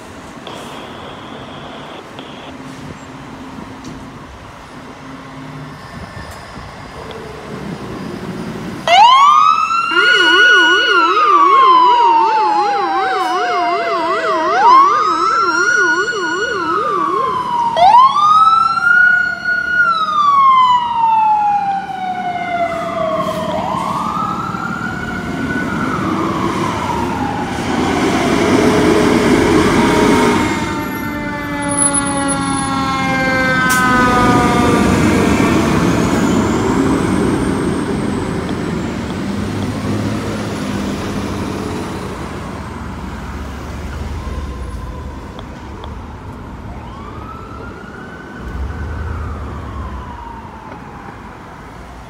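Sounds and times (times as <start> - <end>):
engine and street noise: 0.0 - 52.0
low warbling siren: 0.5 - 2.6, 3.3 - 40.9, 42.6 - 52.0
siren wailing: 0.5 - 2.6, 8.8 - 39.7, 44.0 - 52.0
fast yelp siren: 8.9 - 38.0, 46.7 - 51.6.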